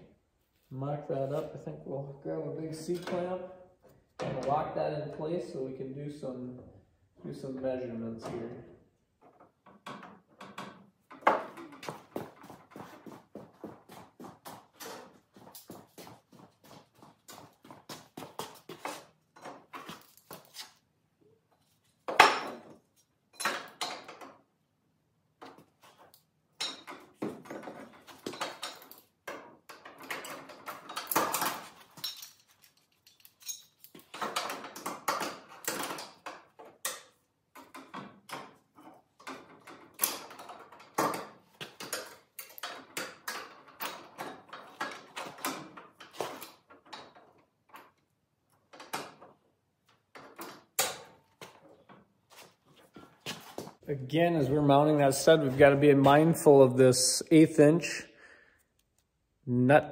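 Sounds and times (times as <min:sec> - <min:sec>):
metal tools clinking on steel: 0:22.1 - 0:24.2, 0:26.6 - 0:27.0, 0:28.2 - 0:36.2.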